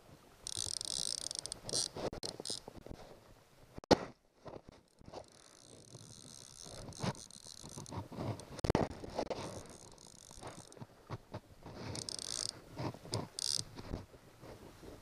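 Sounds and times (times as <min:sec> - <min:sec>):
fishing reel ratchet buzzing: 0:00.4 - 0:02.6, 0:05.2 - 0:07.9, 0:09.5 - 0:10.8, 0:11.9 - 0:12.5, 0:13.3 - 0:13.6.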